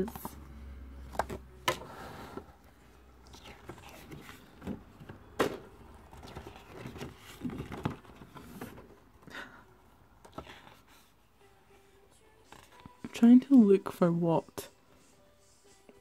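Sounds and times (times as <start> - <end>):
paper pages rustling: 5.9 - 9.0.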